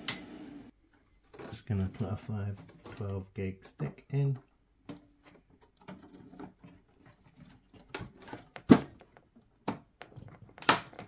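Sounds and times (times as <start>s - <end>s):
computer parts clicking and knocking: 4.3s - 11.0s.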